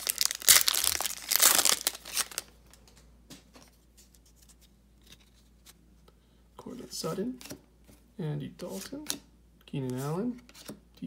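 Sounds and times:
wrapper tearing and crinkling: 0.0s - 2.6s.

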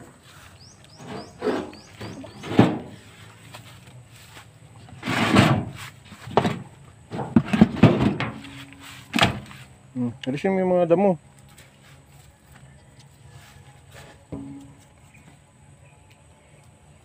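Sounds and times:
rustling scrape: 0.2s - 9.7s.

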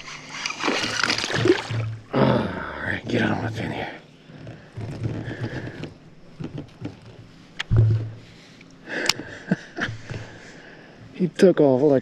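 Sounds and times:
knocks and thumps on plastic kayak: 1.0s - 2.1s, 4.6s - 8.2s.

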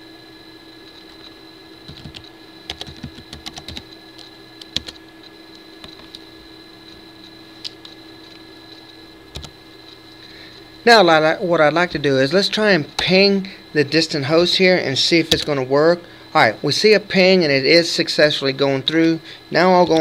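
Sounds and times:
faint electrical hum with whine: 0.0s - 20.0s
keyboard typing: 1.9s - 5.0s, 5.8s - 6.3s, 9.3s - 9.6s.

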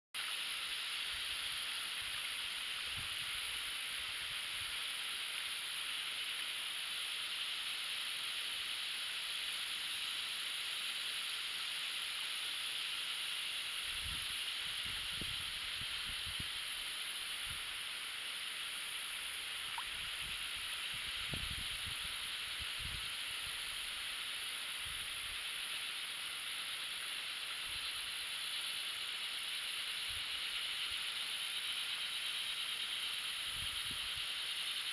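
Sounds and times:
outdoor riverside hiss: 0.2s - 34.9s
wind rumble on microphone: 2.9s - 3.3s, 13.9s - 16.6s, 19.9s - 23.1s, 33.5s - 34.2s.

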